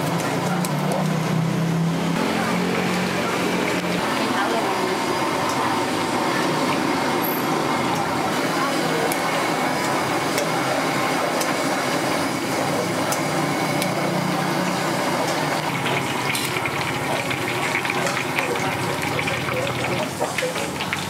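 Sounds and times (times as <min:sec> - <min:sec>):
food deep-frying in oil: 0:00.0 - 0:21.0
sharp oil crackling: 0:00.1 - 0:21.0.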